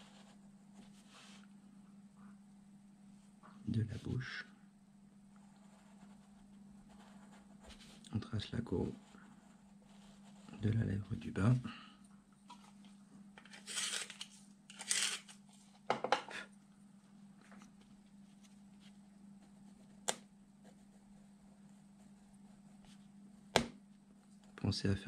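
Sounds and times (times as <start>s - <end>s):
steady low hum: 0.0s - 25.0s
pencil scratching on paper: 5.4s - 8.0s, 8.8s - 10.6s.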